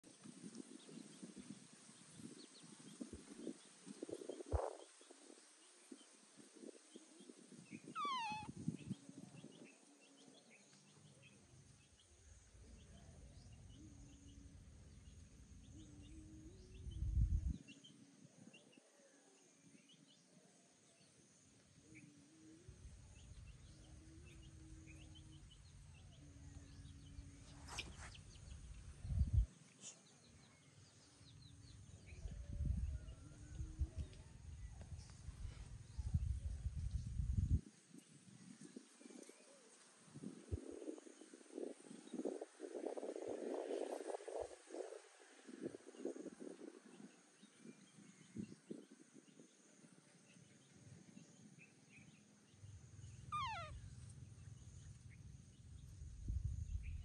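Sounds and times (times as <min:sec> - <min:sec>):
small birds chirping: 0:00.1 - 0:45.0, 0:45.6 - 0:57.0
whistled bird call: 0:07.8 - 0:08.5, 0:53.3 - 0:53.8.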